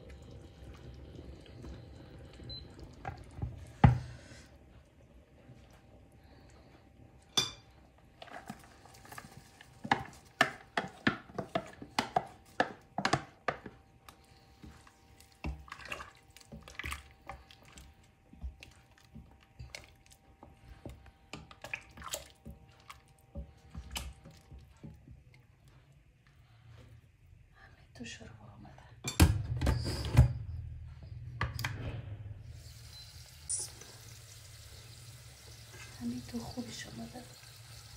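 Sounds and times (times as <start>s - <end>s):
liquid being stirred: 8.2s - 25.6s.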